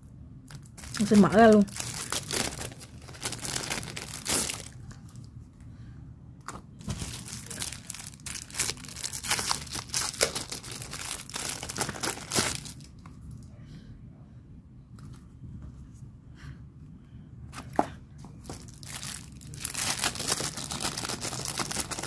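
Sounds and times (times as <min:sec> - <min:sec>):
plastic sleeves crinkling: 0:00.5 - 0:05.3, 0:06.5 - 0:13.4, 0:18.4 - 0:22.0.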